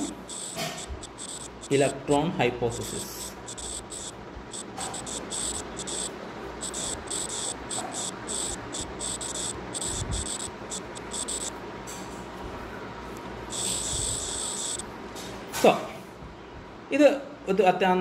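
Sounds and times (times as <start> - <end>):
crickets chirping: 0.0 - 11.5, 13.5 - 14.8.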